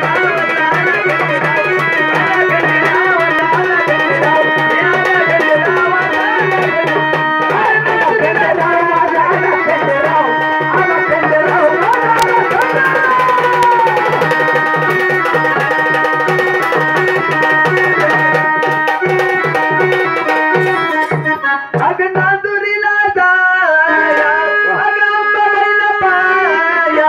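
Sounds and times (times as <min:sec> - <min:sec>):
held melodic tones: 0:00.0 - 0:22.0
hand drum beat: 0:00.0 - 0:22.4
person singing: 0:00.0 - 0:27.0.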